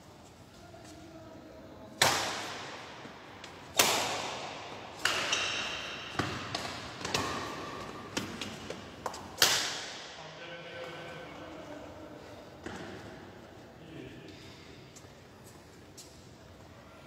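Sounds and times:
racket hitting shuttlecock: 0:02.0 - 0:10.2.

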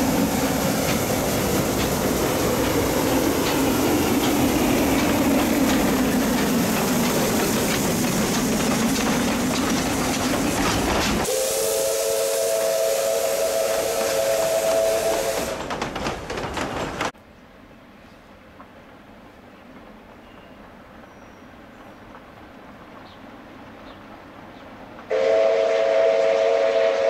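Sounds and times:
steam hiss: 0:00.0 - 0:15.8
steam whistle chord: 0:11.3 - 0:15.6, 0:25.1 - 0:27.0.

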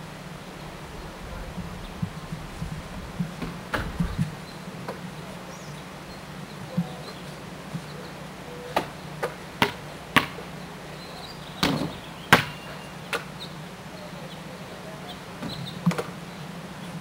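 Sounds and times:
steady low hum: 0:00.0 - 0:12.3.

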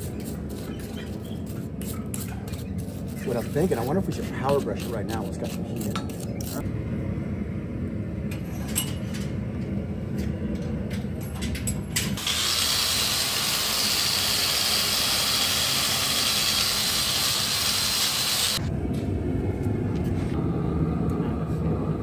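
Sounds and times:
low shop rumble: 0:00.0 - 0:22.0
angle grinder wire wheel whirring: 0:12.2 - 0:18.6.

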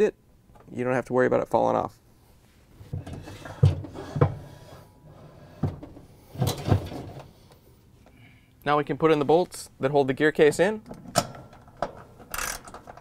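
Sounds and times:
metal gear case knocks and clunks: 0:05.6 - 0:07.3.

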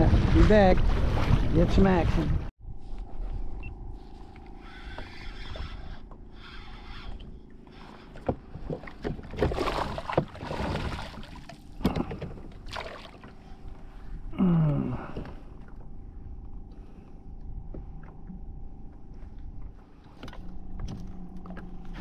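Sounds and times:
knocks and scrapes on kayak hull: 0:05.6 - 0:12.7
fish splashing in water: 0:08.8 - 0:11.7, 0:12.6 - 0:13.4.

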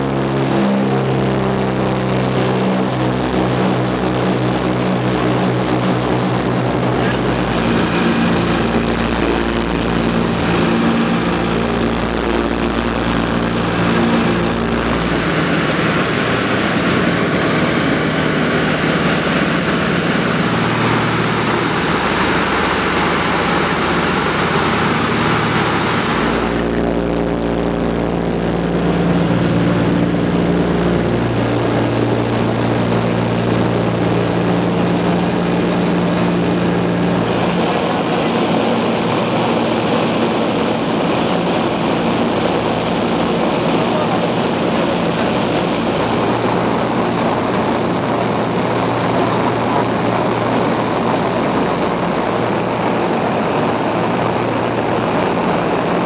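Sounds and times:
propeller engines droning: 0:00.0 - 0:56.0
rush of air: 0:06.4 - 0:33.5.

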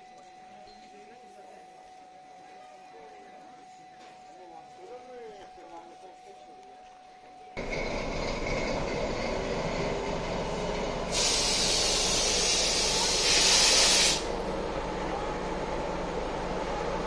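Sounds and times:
diesel locomotive idling: 0:00.0 - 0:17.0
compressed air hissing: 0:11.0 - 0:14.4.

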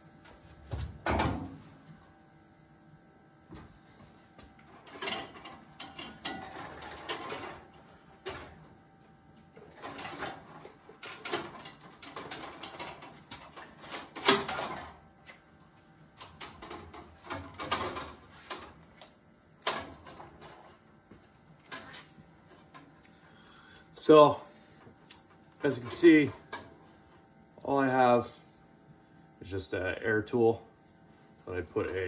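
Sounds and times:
clicks and rattles of metal parts: 0:04.8 - 0:07.6, 0:09.8 - 0:14.9.

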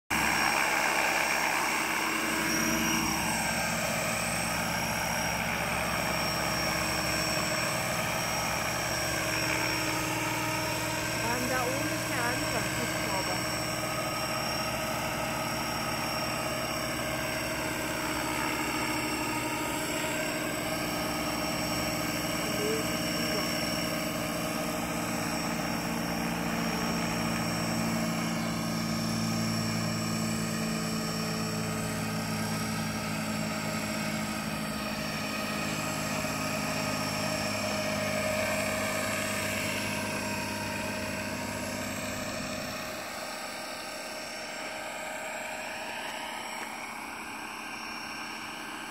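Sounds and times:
model helicopter rotor whine: 0:00.1 - 0:48.9.

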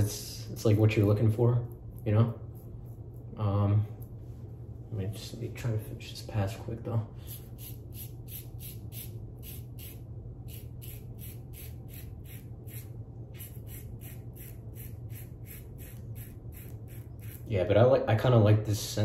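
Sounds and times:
razor scraping stubble: 0:07.3 - 0:17.5.

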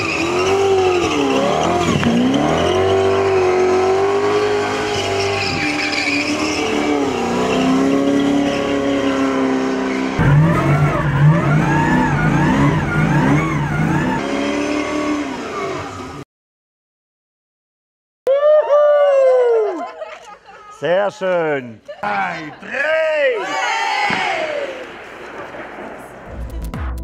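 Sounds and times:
car engine revving: 0:00.0 - 0:16.2.

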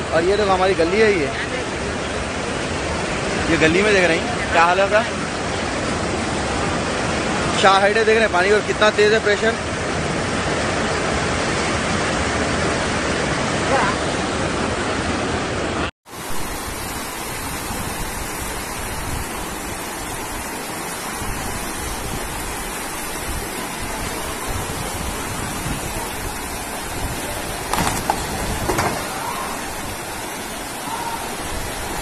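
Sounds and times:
floodwater rushing: 0:00.0 - 0:32.0.

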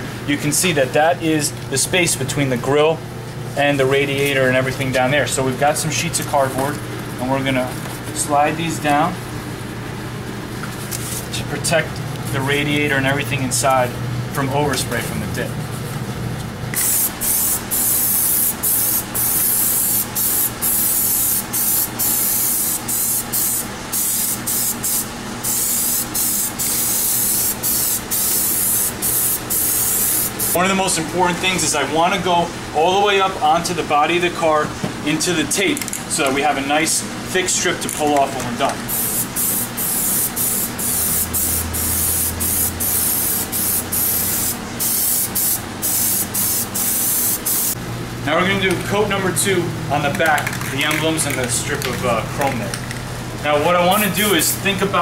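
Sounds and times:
aerosol can spraying: 0:16.8 - 0:30.6, 0:38.9 - 0:47.8.

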